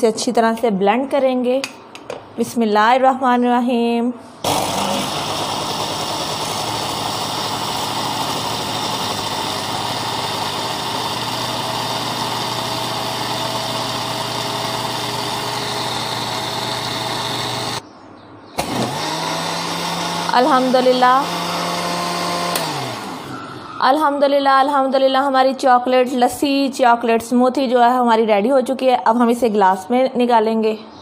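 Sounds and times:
blender running: 4.4s - 17.8s, 18.6s - 23.6s.

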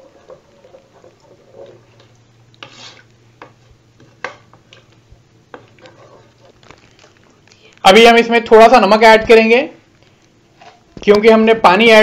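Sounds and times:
utensil stirring in metal pot: 0.0s - 7.8s.

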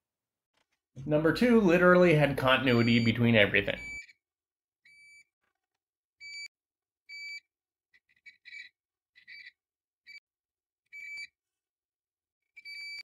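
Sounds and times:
multimeter continuity beeps: 2.1s - 4.2s, 6.2s - 6.5s, 7.1s - 7.5s, 10.9s - 11.4s, 12.6s - 13.0s.

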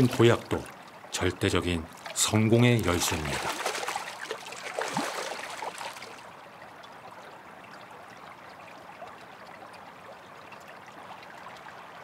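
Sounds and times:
soft wash of water: 0.0s - 12.0s
fish splashing: 2.0s - 6.2s.

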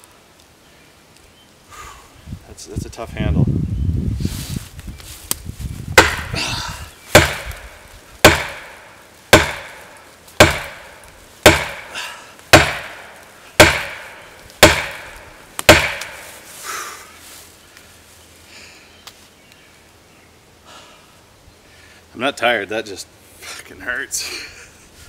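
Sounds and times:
axe handle striking a tree trunk: 6.0s - 6.4s, 7.1s - 9.8s, 10.4s - 16.3s.

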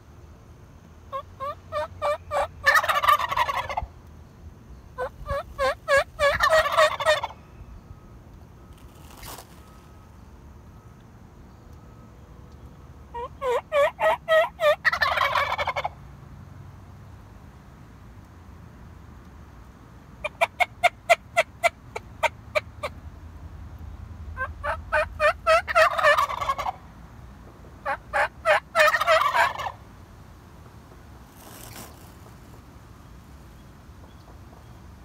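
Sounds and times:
turkeys gobbling: 1.1s - 3.9s, 5.0s - 7.4s, 13.1s - 16.0s, 20.2s - 23.0s, 24.4s - 26.8s, 27.8s - 29.8s.

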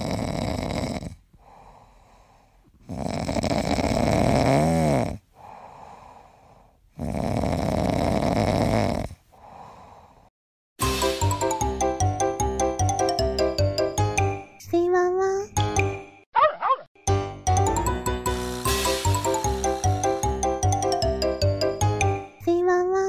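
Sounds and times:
dog snoring: 0.0s - 1.2s, 2.8s - 5.2s, 6.9s - 9.2s.

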